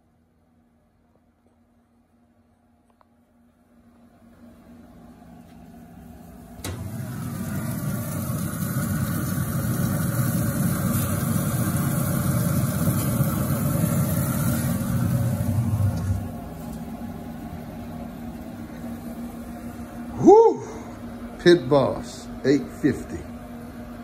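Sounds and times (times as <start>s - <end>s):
rush of flame and fan: 6.2s - 21.2s
sizzling hiss: 6.7s - 16.7s.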